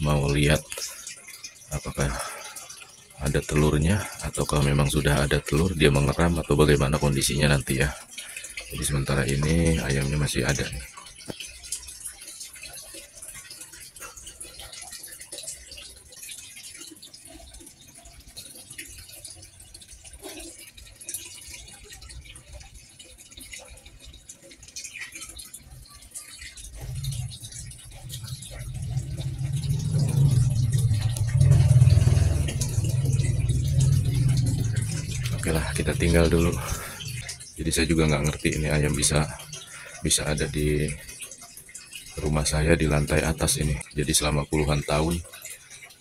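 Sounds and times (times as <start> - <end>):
low steady rumble: 26.7 - 39.5.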